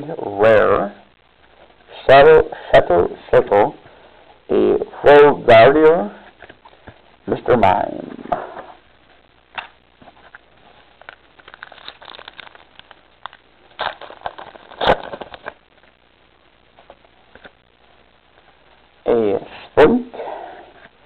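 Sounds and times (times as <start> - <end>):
foil wrapper crinkling: 9.6 - 15.9.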